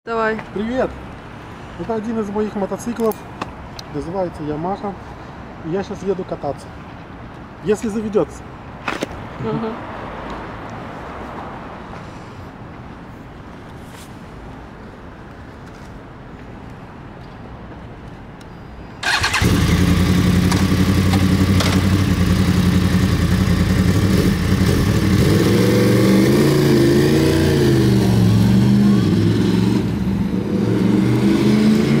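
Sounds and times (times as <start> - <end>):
motorcycle engine starting and idling: 19.0 - 26.0.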